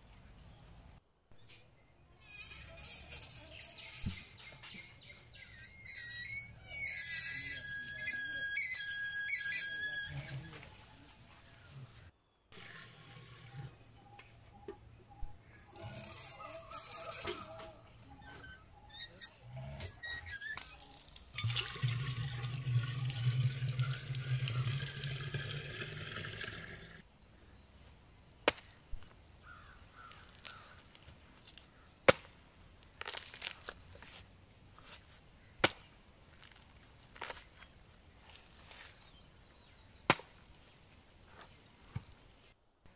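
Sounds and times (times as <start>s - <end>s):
water pouring into metal pot: 20.6s - 27.0s.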